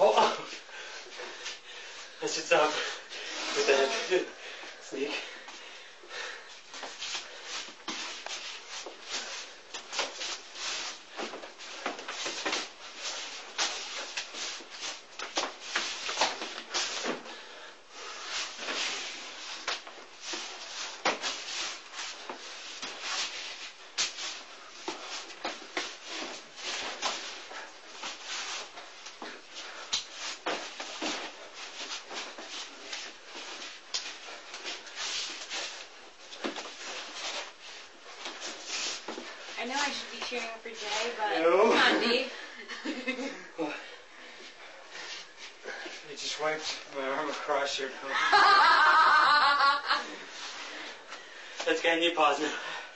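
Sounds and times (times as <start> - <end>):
hands and forearms slapping: 19.6 - 21.6, 28.0 - 33.1.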